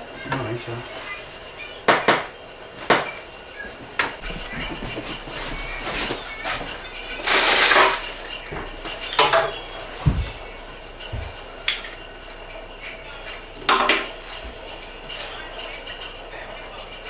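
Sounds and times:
dish scraping and clinking: 4.0s - 12.1s.

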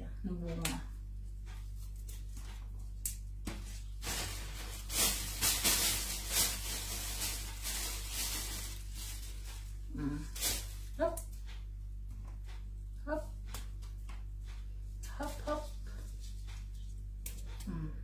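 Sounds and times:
plastic bag crinkling: 3.8s - 11.0s.

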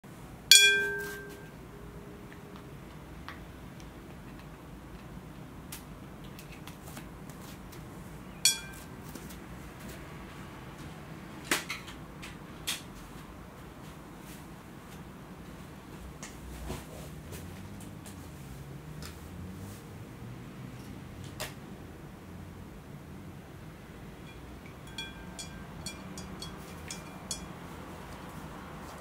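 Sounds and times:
glass bowl clinking: 0.5s - 2.7s, 8.5s - 8.9s, 24.3s - 27.7s.

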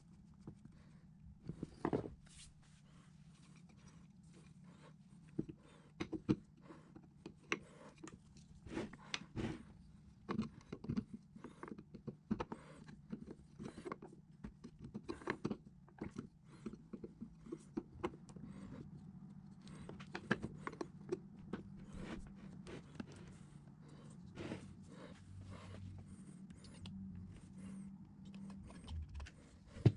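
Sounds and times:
steady low hum: 11.0s - 29.9s.

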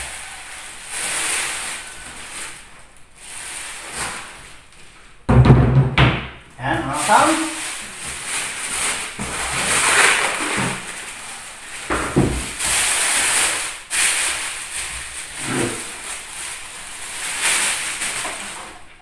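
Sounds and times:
plastic bag rustling: 0.0s - 5.3s, 6.7s - 19.0s
dull bumps of cabinet moved: 5.3s - 6.4s, 11.9s - 12.6s.

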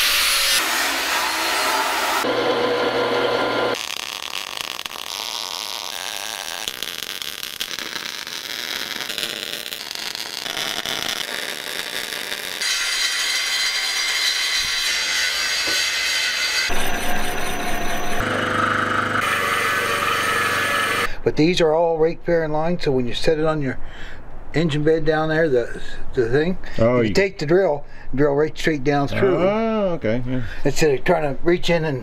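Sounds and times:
milling machine cutting steel: 0.0s - 21.1s
arc-welding crackle: 3.7s - 13.0s.

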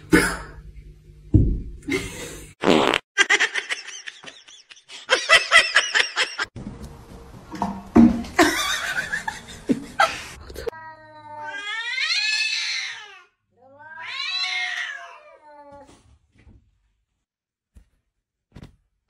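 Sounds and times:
cat yowling: 10.7s - 15.8s.

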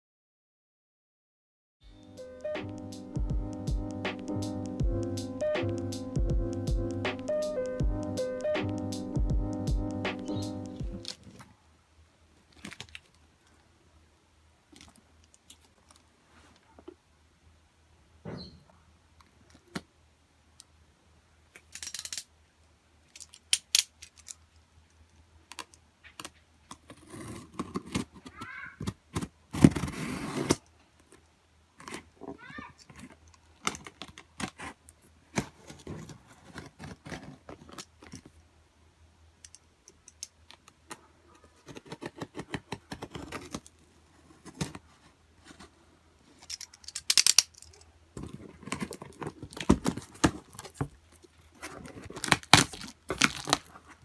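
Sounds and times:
cardboard rustling: 26.7s - 30.6s, 31.8s - 38.4s, 40.9s - 46.4s, 48.2s - 54.0s
scraping at packing tape: 26.8s - 28.4s, 29.1s - 30.7s, 33.7s - 37.9s, 41.4s - 44.9s.

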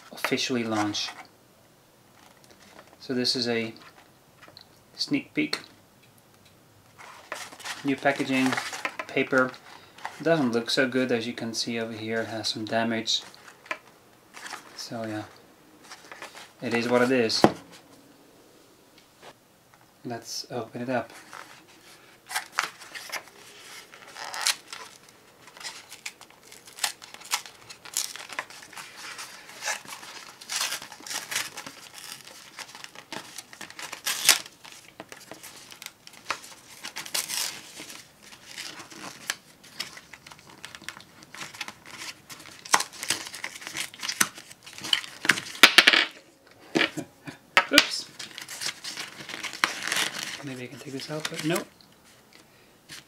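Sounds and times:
paperboard box tearing and crinkling: 22.3s - 45.6s, 48.2s - 50.4s.

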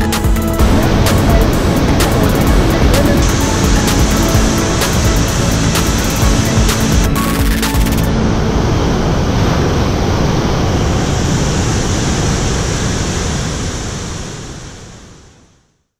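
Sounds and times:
waterfall roaring: 0.3s - 15.4s.

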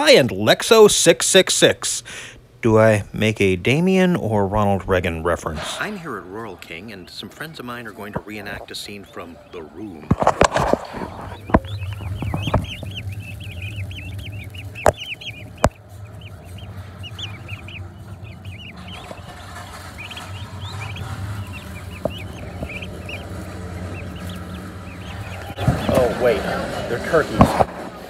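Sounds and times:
steady low hum: 1.6s - 28.0s
turkey poults peeping: 3.4s - 28.0s
sharp knocks: 10.0s - 26.2s.

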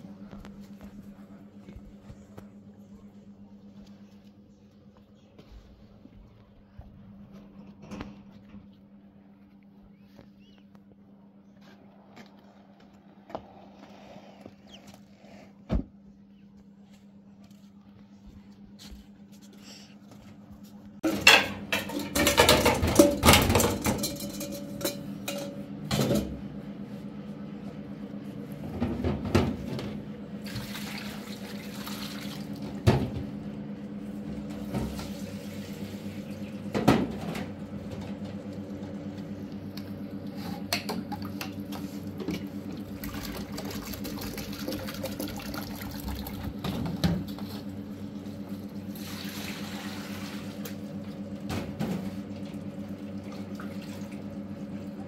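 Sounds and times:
steady low hum: 0.0s - 55.0s
dishes clattering in metal sink: 21.0s - 26.4s
water running: 42.6s - 46.6s.

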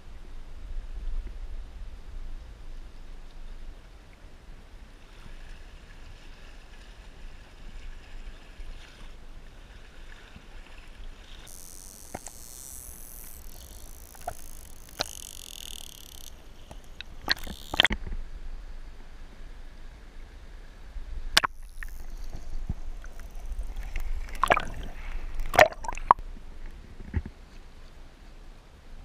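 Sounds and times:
sharp splashes: 11.5s - 18.0s, 21.4s - 26.2s
underwater hiss: 21.4s - 26.2s
water lapping and sloshing: 21.4s - 26.2s.

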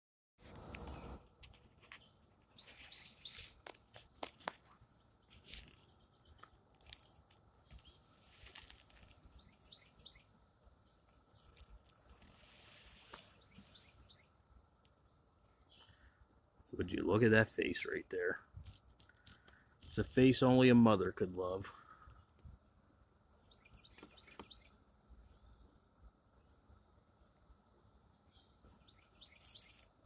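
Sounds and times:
distant cicada chorus drone: 0.4s - 30.0s
cicada clicks: 2.7s - 10.3s, 11.0s - 15.0s, 18.7s - 20.7s, 23.8s - 24.7s, 28.8s - 30.0s
short hissing bursts: 8.0s - 9.0s, 12.1s - 14.3s.

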